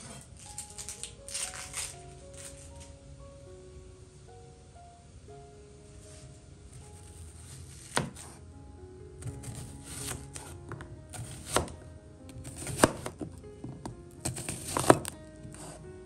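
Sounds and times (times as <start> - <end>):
knife slicing onion: 7.1 - 8.4, 9.2 - 11.8, 12.4 - 13.2, 14.2 - 15.8.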